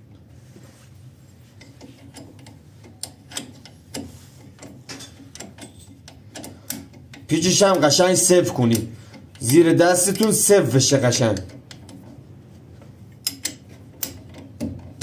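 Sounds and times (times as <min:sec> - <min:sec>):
socket ratchet clicking: 0:01.6 - 0:10.5, 0:13.2 - 0:15.0.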